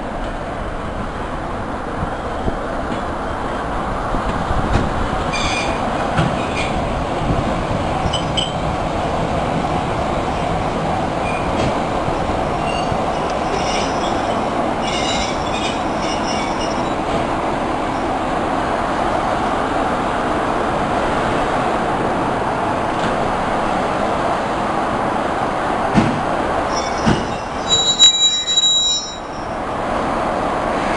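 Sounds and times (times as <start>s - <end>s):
train wheels rumbling on rails: 0.0s - 30.9s
high brake squeal: 5.3s - 5.8s, 12.6s - 17.0s, 26.7s - 29.6s.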